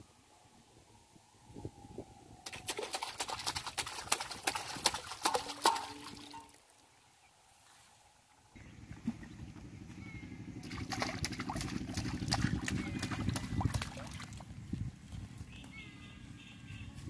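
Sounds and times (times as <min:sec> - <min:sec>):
fish thrashing and splashing: 0:02.5 - 0:06.6, 0:10.6 - 0:14.5
low rumble: 0:08.6 - 0:15.5.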